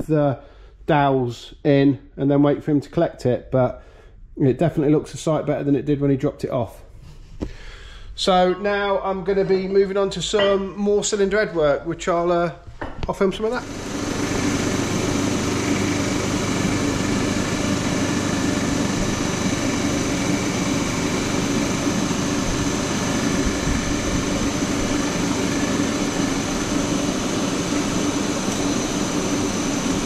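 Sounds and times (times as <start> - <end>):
machine motor drone with whine: 13.5 - 30.0.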